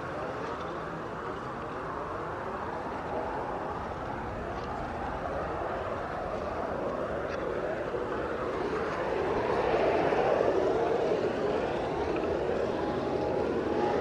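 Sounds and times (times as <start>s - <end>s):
dense noisy drone: 0.0s - 14.0s.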